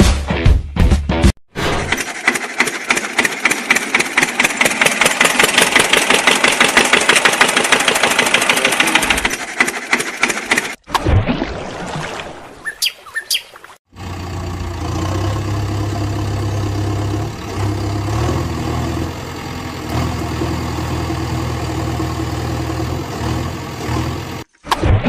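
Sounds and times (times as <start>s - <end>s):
bird chirps: 12.6s - 13.6s
low engine hum: 13.9s - 24.5s.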